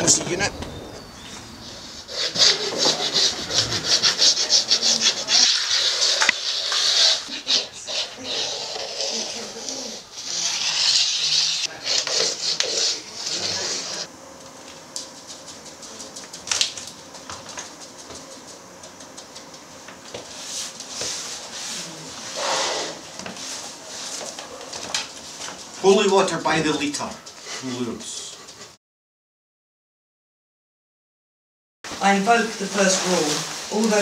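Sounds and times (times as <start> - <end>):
chalk scraping on wooden floor: 2.0 - 14.1, 20.1 - 24.4.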